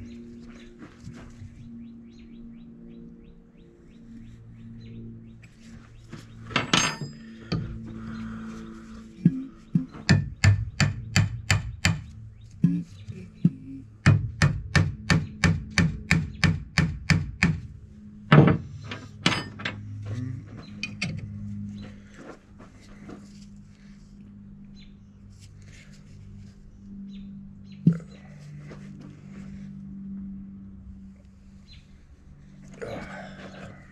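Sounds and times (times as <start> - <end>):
hammer tapping on metal: 9.7 - 12.8.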